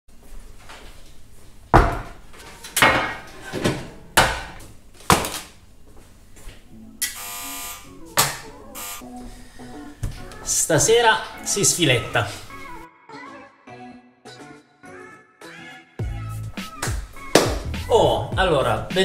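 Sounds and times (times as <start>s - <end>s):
short buzzing tone: 7.0s - 7.9s, 8.7s - 9.1s.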